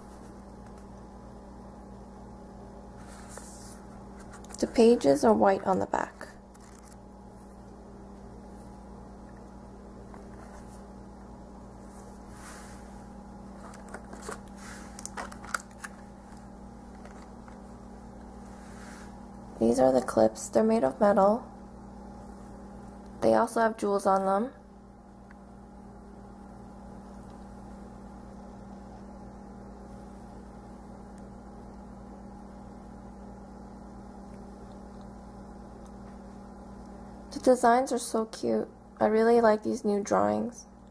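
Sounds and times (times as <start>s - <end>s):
steady low hum: 0.0s - 40.9s
plastic packaging rustling and clicking: 6.5s - 7.0s, 13.6s - 17.7s.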